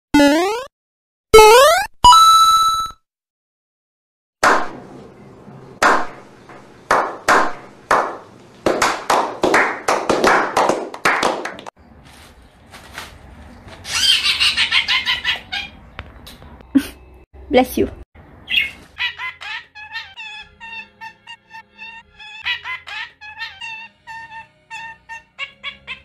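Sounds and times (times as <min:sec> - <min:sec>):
budgerigar high chatter: 0:13.9 - 0:15.8
budgerigar raspy calls: 0:13.9 - 0:15.8, 0:22.3 - 0:26.0.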